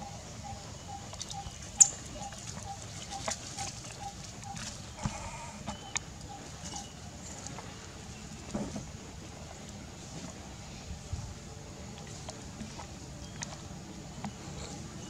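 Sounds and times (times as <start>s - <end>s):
animal's soft call: 2.2s - 5.8s.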